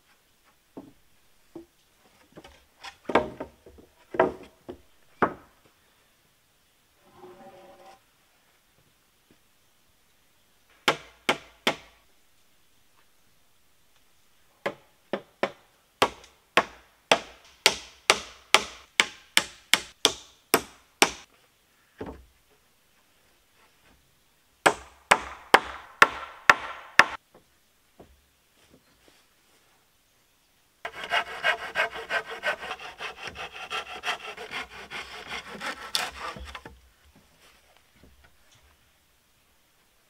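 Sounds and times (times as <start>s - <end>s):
hammer nailing into wood: 24.7s - 27.2s.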